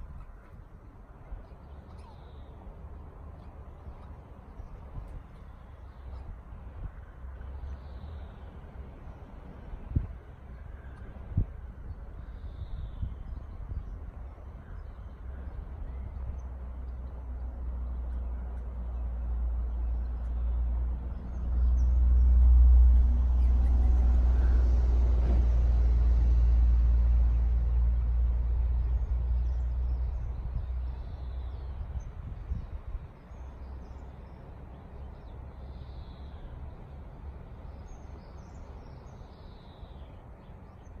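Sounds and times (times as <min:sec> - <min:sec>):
low outdoor rumble: 0:00.0 - 0:41.0
vehicle passing: 0:19.3 - 0:30.0.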